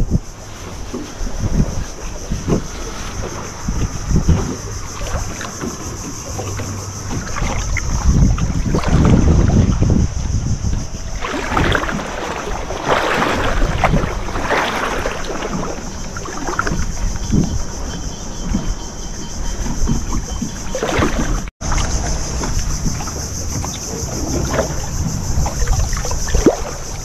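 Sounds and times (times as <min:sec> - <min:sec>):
rushing washes of noise: 0:00.0 - 0:17.2
wind buffeting microphone: 0:00.0 - 0:27.0.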